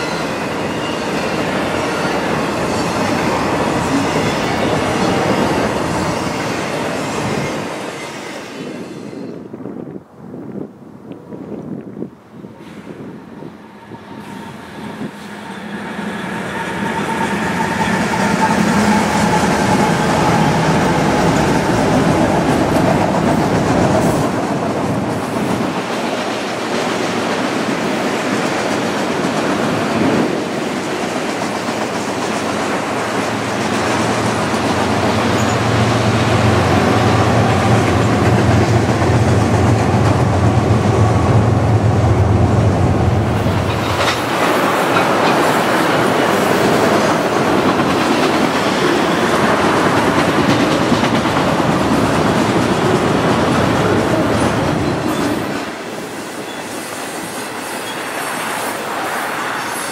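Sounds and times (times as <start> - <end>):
train wheels clacking on rails: 14.2 - 59.9.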